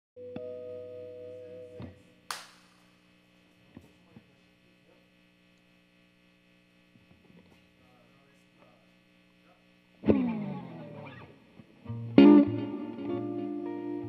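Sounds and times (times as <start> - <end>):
electric guitar notes: 0.2 - 2.1, 10.0 - 14.0
amplifier hum: 0.2 - 14.0.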